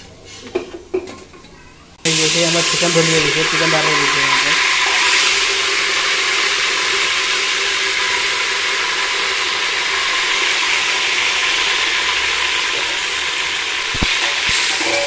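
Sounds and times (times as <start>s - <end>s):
chicken sizzling in hot oil: 2.0s - 15.0s.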